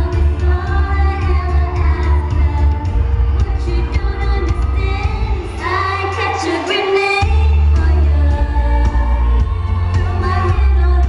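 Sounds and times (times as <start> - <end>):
pop music over loudspeakers: 0.0 - 11.0
woman singing: 0.0 - 11.0.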